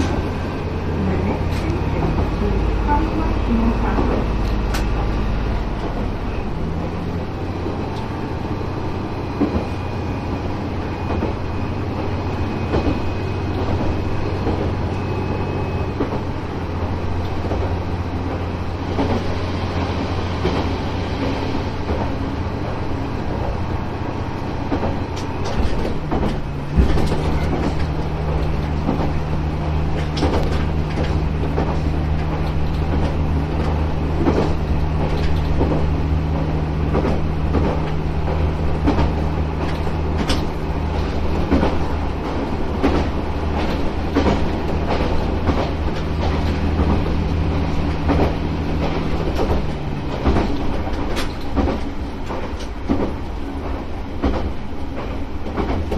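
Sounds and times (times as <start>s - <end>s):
railcar engine humming: 0.0s - 55.9s
wheels clicking over rail joints: 24.4s - 55.9s.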